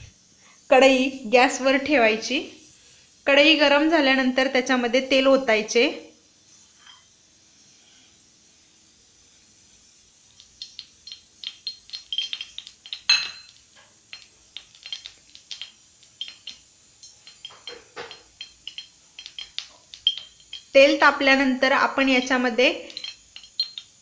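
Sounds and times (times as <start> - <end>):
metallic ticks of heating pan: 10.4 - 24.0.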